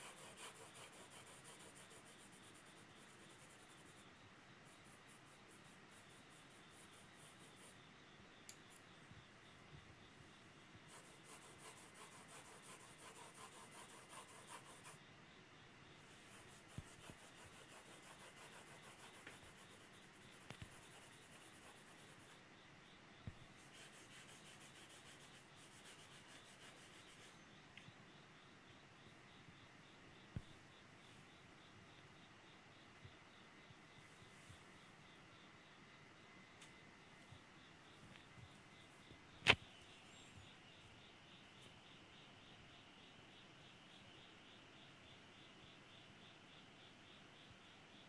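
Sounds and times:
pencil scratching on paper: 0:00.0 - 0:04.0, 0:04.6 - 0:07.8, 0:10.9 - 0:15.0, 0:16.1 - 0:22.4, 0:23.6 - 0:27.4.

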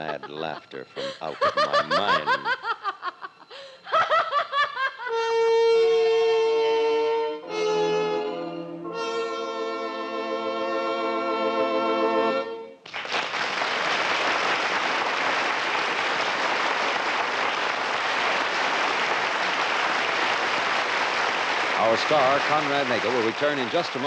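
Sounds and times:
orchestral held chord: 0:05.7 - 0:12.7.

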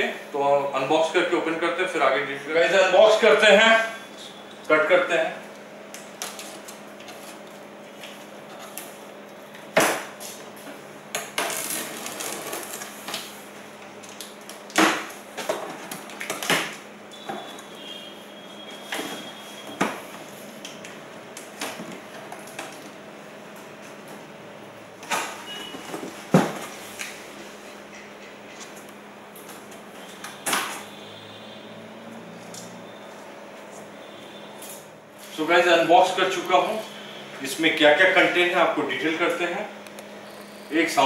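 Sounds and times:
faint steady hum: 0:00.0 - 0:41.0.

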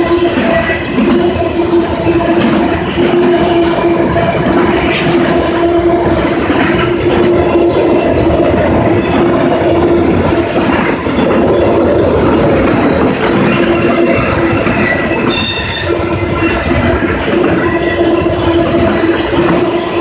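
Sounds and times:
steel wheels on rails: 0:00.0 - 0:20.0.

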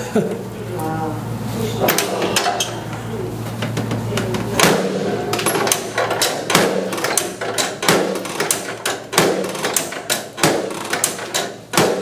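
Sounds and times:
sharp knocks: 0:03.6 - 0:12.0.

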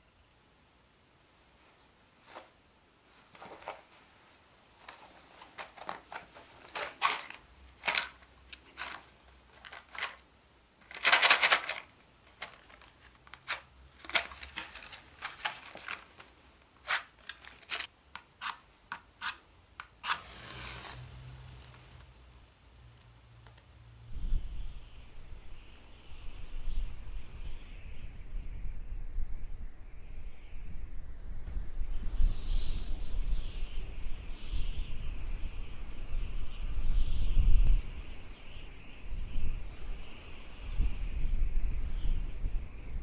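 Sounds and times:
match striking scrapes: 0:10.9 - 0:22.1
flare hiss: 0:19.9 - 0:22.4.

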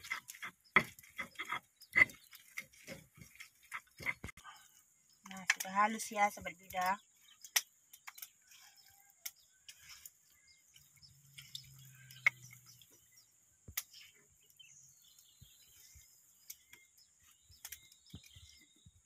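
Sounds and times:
spatula scraping and tapping: 0:00.0 - 0:04.4
birds chirping: 0:00.0 - 0:19.0.

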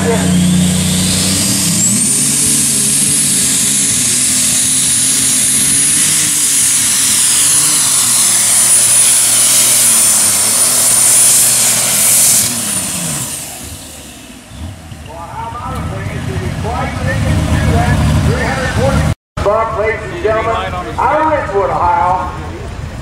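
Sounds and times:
diesel engine roaring: 0:00.0 - 0:23.0
high turbo whistle: 0:00.2 - 0:14.6.

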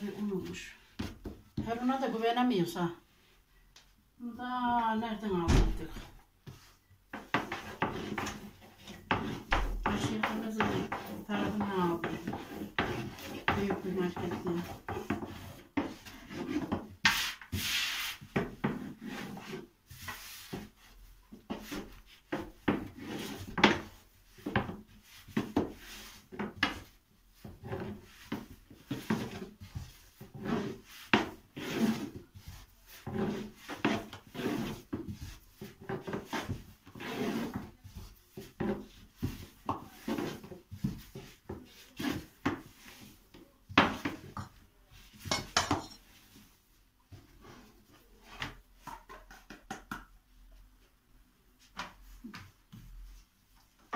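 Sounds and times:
rolling pin rubbing over dough: 0:06.4 - 0:48.9.

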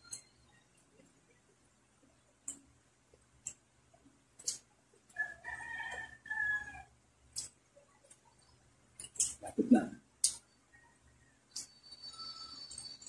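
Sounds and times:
rooster crowing: 0:05.2 - 0:06.9.

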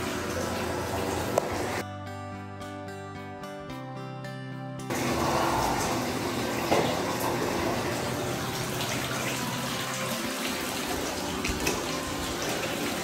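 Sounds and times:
water pouring into bathtub: 0:00.0 - 0:01.8, 0:04.9 - 0:13.0.

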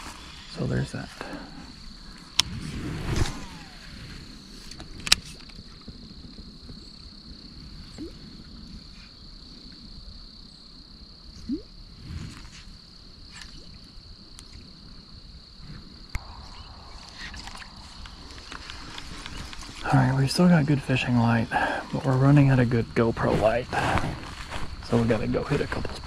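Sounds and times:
steady high-pitched whine: 0:15.9 - 0:23.8.

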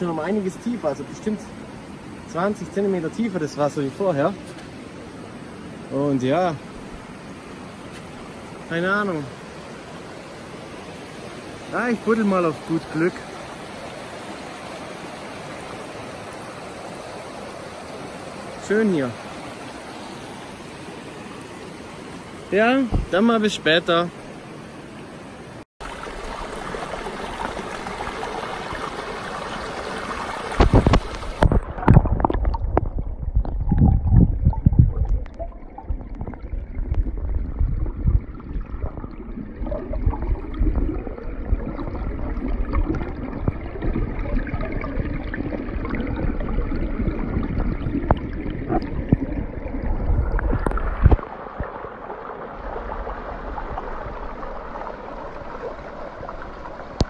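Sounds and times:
muffled underwater thumps and gurgling: 0:22.9 - 0:23.2, 0:30.5 - 0:51.9.

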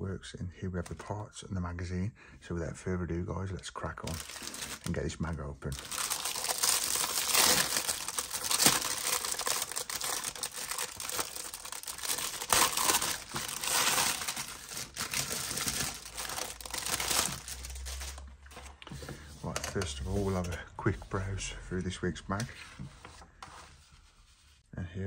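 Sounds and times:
plastic wrapping crinkling and tearing: 0:04.0 - 0:18.9.

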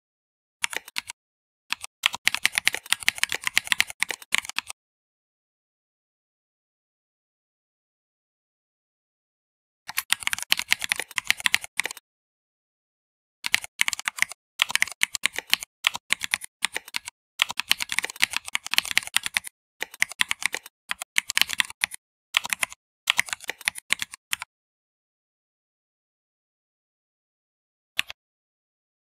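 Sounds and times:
keyboard keystroke clicks: 0:00.6 - 0:04.8.

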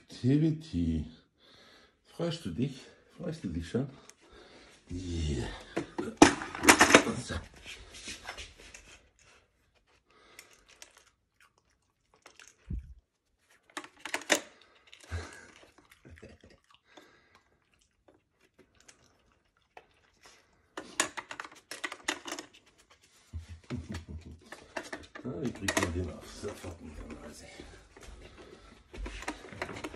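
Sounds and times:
plastic puzzle board clattering: 0:05.8 - 0:07.2, 0:20.8 - 0:22.6.

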